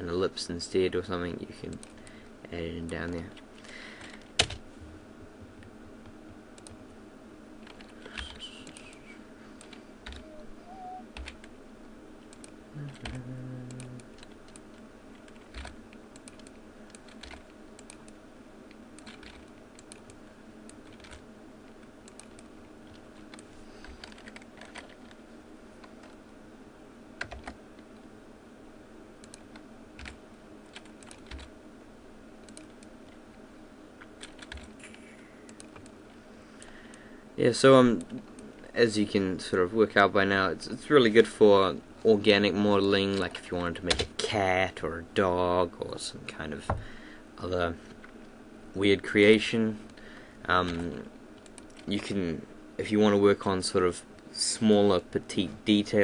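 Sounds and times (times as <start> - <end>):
low background hum: 0.0 - 56.0
computer keyboard key presses: 15.3 - 18.1, 27.2 - 27.6.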